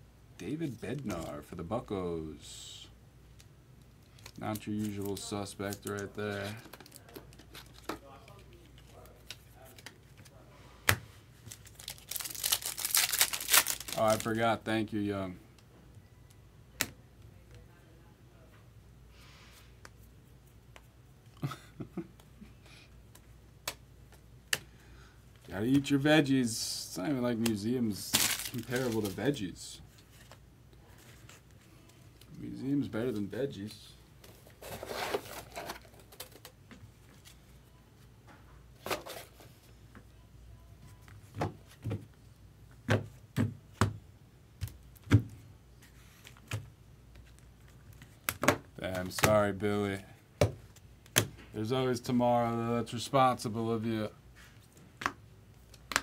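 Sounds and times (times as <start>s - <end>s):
faint low hum: 0.0s - 43.3s.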